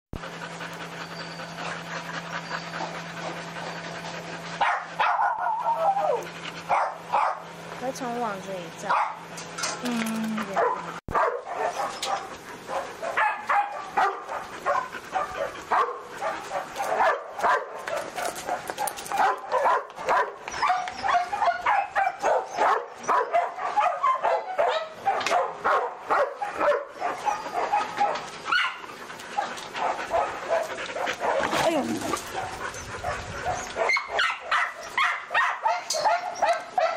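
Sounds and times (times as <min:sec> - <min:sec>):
many dogs barking: 0:00.2 - 0:07.6, 0:08.8 - 0:09.3, 0:10.5 - 0:36.9
loud dog barks: 0:04.6 - 0:07.4, 0:10.6 - 0:28.8, 0:33.5 - 0:36.9.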